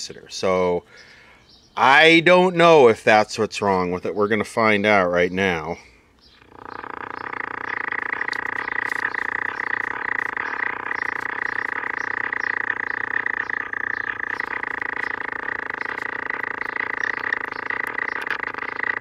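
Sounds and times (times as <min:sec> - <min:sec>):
buzzy radio speaker noise: 0:06.4 - 0:19.0.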